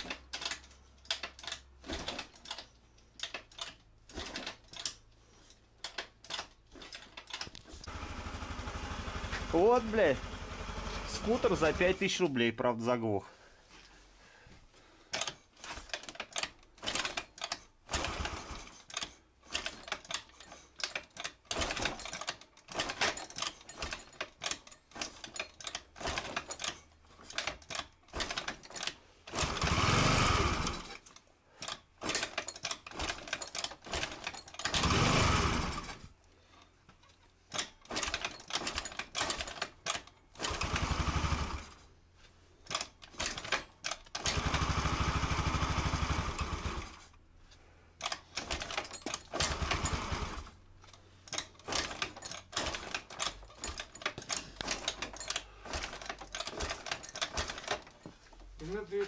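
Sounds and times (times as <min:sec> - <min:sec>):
scooter engine sputtering: 0:07.8 - 0:11.7, 0:29.3 - 0:30.9, 0:33.9 - 0:36.0, 0:44.2 - 0:47.1.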